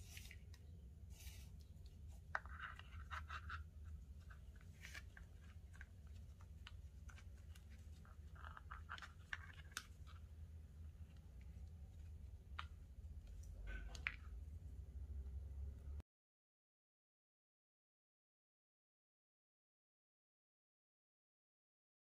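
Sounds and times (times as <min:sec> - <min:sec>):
cord scratching and rustling: 0:00.0 - 0:14.4
low steady hum: 0:00.0 - 0:16.0.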